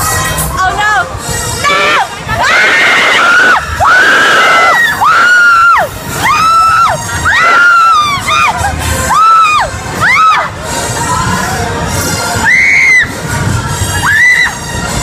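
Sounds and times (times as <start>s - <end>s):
riders screaming: 1.6s - 10.5s.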